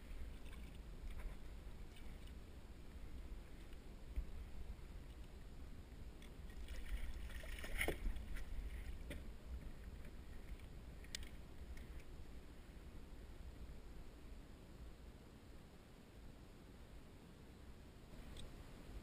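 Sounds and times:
water splashing: 6.2s - 9.2s.

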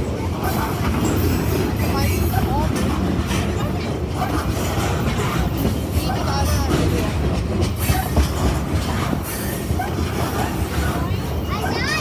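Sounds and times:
sharp clacks of train trucks: 0.0s - 12.0s
train wheels rumbling on rails: 0.0s - 12.0s.

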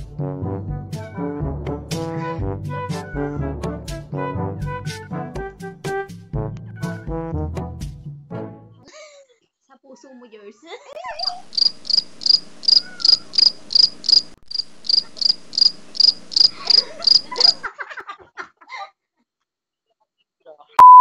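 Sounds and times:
crickets chirping: 11.2s - 17.6s.

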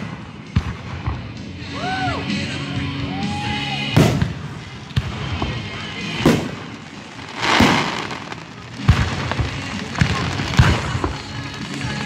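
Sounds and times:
firework crackling: 0.0s - 12.0s
firework shells bursting: 4.0s - 12.0s.

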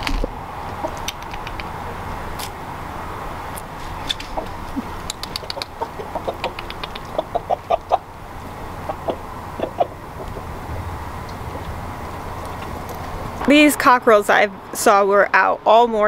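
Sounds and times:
cockerel clucking: 0.1s - 2.0s, 3.9s - 10.6s.

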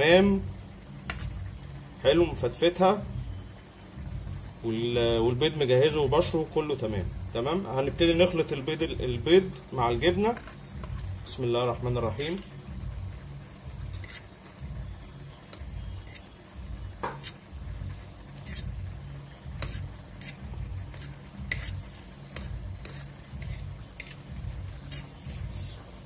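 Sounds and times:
low thudding of mixing strokes: 13.7s - 26.0s.

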